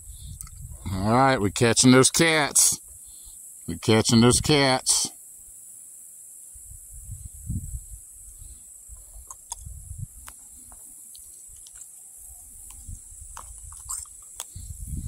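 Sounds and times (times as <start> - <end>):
microphone rumble: 0.0 - 1.6, 14.6 - 15.0
insect drone: 0.0 - 15.0.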